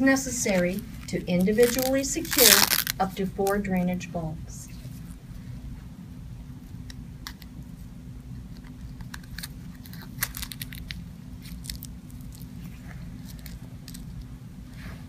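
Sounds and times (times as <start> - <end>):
steady low hum: 0.0 - 15.0
plastic clicks and crackles: 8.5 - 12.5.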